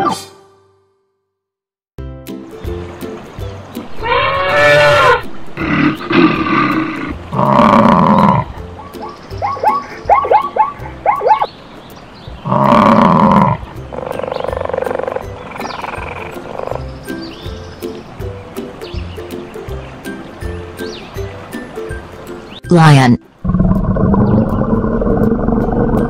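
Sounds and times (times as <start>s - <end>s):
loud animal calls: 3.9s - 11.5s, 12.4s - 16.9s.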